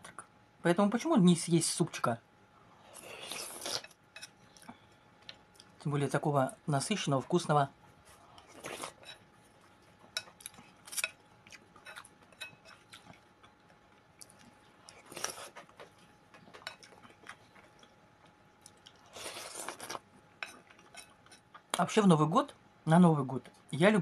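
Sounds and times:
chewing and mouth sounds: 9.7s - 21.8s.

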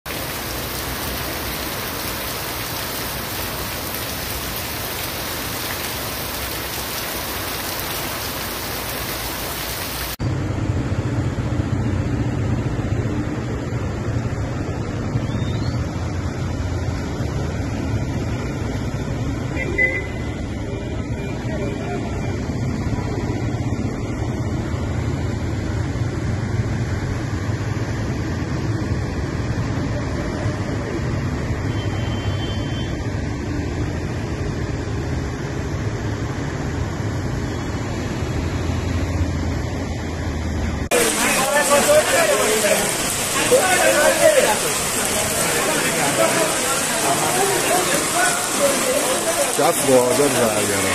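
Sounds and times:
floodwater running: 0.0s - 10.2s, 40.4s - 50.9s
heavy rain pouring: 0.0s - 10.2s, 20.2s - 32.1s, 32.9s - 50.9s
car wheels pushing through water: 40.9s - 50.9s.

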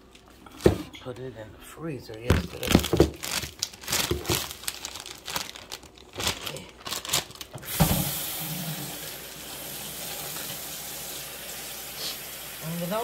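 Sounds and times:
packaging crinkling and tearing: 2.2s - 8.4s
tap water running: 7.5s - 13.0s.

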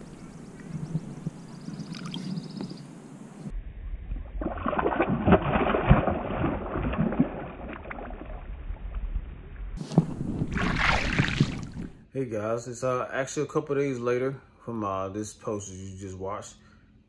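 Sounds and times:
water splashing and sloshing: 0.0s - 2.6s, 4.2s - 12.1s.

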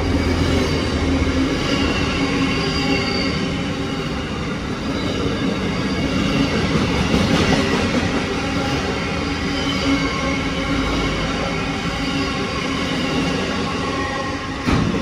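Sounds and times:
high squealing tones: 0.0s - 6.6s
train wheels rumbling on rails: 0.0s - 15.0s.

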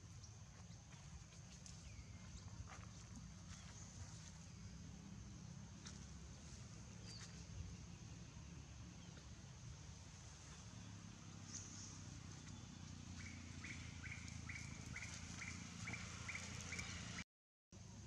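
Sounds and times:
low outdoor rumble: 0.0s - 17.2s
bird chirping: 6.4s - 9.4s, 10.3s - 17.2s.

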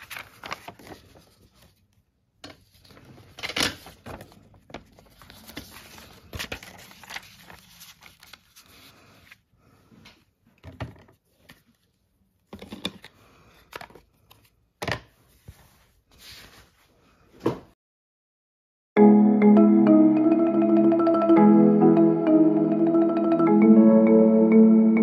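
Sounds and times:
paper rustling: 0.0s - 9.4s, 15.2s - 16.9s.

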